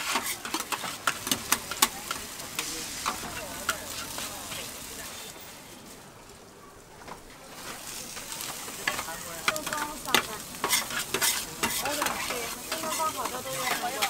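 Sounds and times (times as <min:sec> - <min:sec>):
metal spatulas scraping: 0:00.0 - 0:04.3, 0:08.8 - 0:14.0
spatula edges clacking on metal: 0:00.0 - 0:04.6, 0:08.2 - 0:14.0
vegetables sizzling on a griddle: 0:00.0 - 0:14.0.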